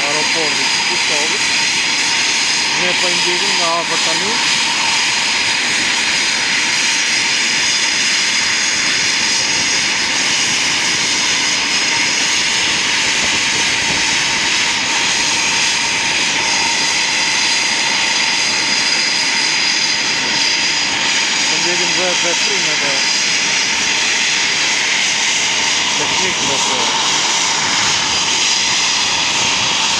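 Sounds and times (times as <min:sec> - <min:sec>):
jet engines idling: 0:00.0 - 0:29.9.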